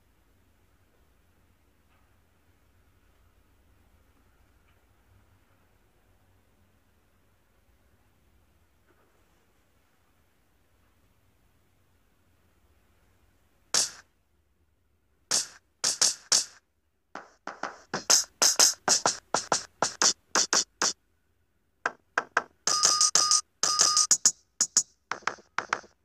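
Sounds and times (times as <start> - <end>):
electronic drum pad hits: 13.8 - 14.0, 15.3 - 16.6, 17.2 - 21.0, 21.9 - 26.0.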